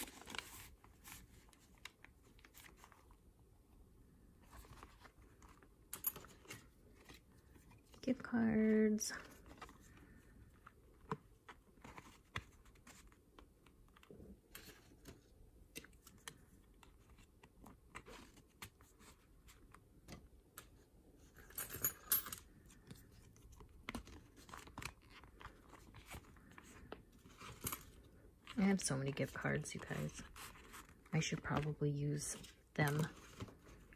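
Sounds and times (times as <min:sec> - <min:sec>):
cards rustling: 0:00.0 - 0:03.2, 0:09.0 - 0:19.8, 0:22.5 - 0:33.9.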